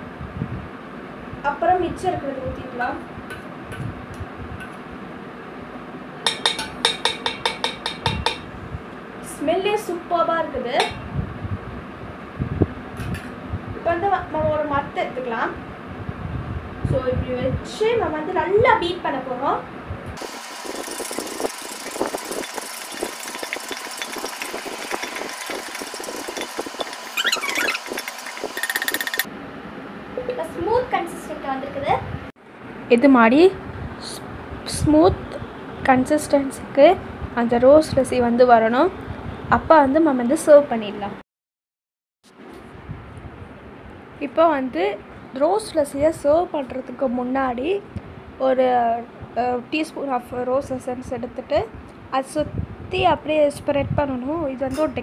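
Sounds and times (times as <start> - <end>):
spoon clinking against metal pot: 6.3 - 8.5, 10.8 - 11.0
wooden churner rattling in metal pot: 20.7 - 29.3.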